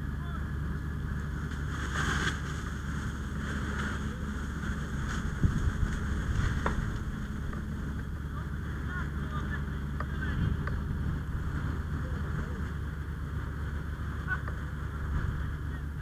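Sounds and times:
engine droning: 0.0s - 16.0s
faint distant voices: 3.3s - 16.0s.

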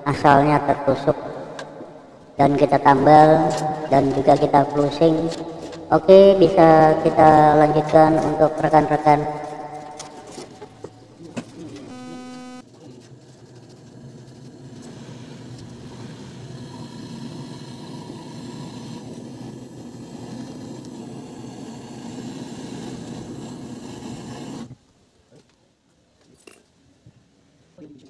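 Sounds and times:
brief pitched tone: 11.9s - 12.6s
gas torch hissing: 15.3s - 24.8s.

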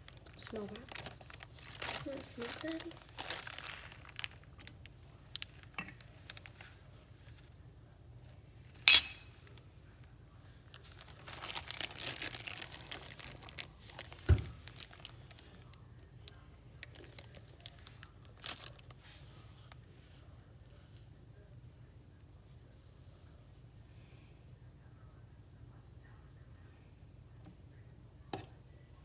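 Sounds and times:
plastic bag crinkling: 0.0s - 6.7s, 10.7s - 19.0s.

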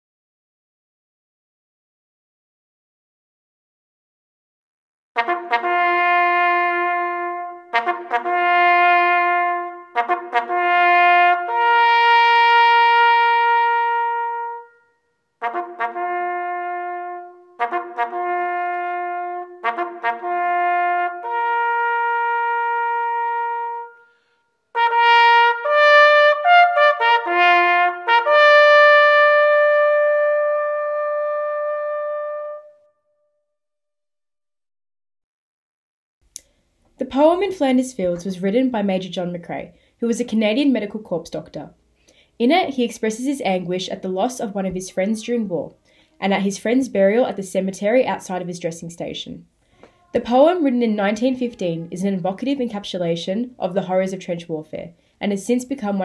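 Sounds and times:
solo bugle call: 5.2s - 33.0s.

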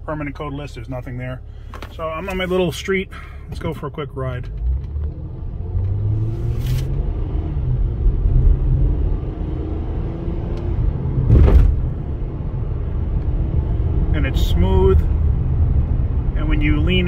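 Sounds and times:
tyres on road from cabin: 0.0s - 17.0s
thump: 11.3s - 11.9s.

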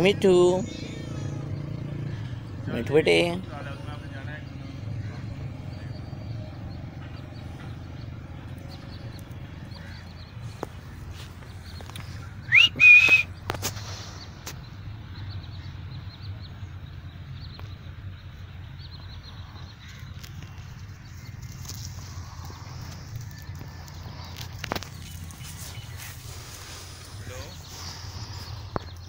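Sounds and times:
parakeet whistle: 12.5s - 13.3s.

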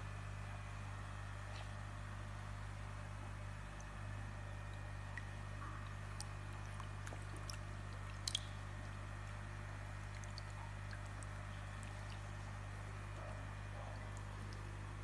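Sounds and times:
steady low hum: 0.0s - 15.0s
water splashing and dripping: 4.7s - 12.6s.

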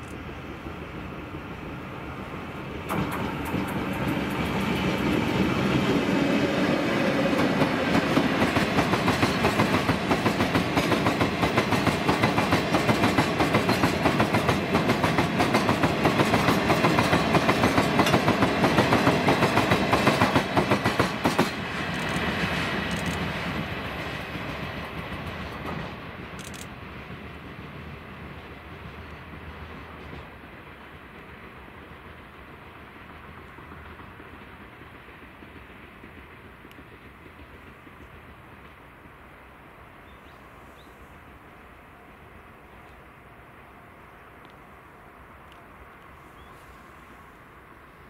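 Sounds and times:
wheels clickety-clack on rails: 0.0s - 40.4s
freight train passing: 0.0s - 48.0s.

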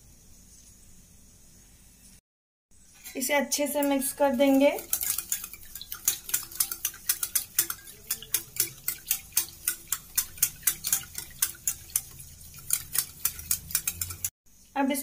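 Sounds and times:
whisk clicking against steel bowl: 3.0s - 14.3s.

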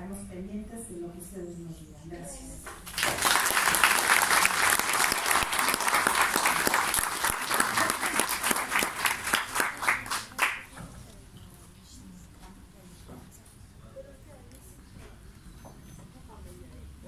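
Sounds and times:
audience applauding: 2.8s - 10.7s.

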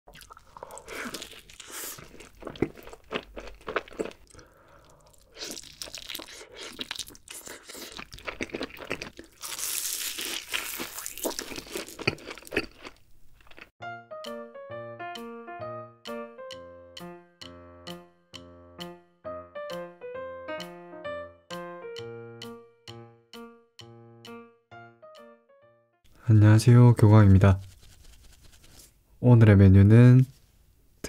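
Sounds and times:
person biting and chewing: 0.1s - 13.7s
light keyboard tune: 13.8s - 26.0s.

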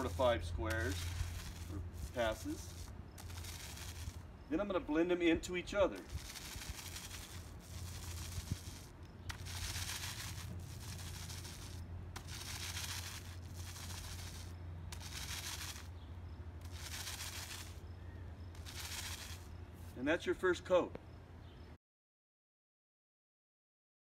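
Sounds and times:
foam roller scraping on concrete: 0.0s - 4.2s, 5.8s - 15.9s, 16.6s - 17.8s, 18.6s - 20.0s.

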